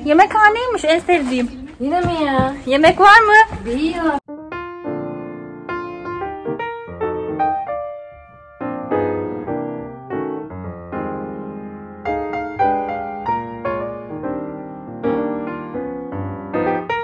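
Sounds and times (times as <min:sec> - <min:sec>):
piano music: 0:04.0 - 0:17.0.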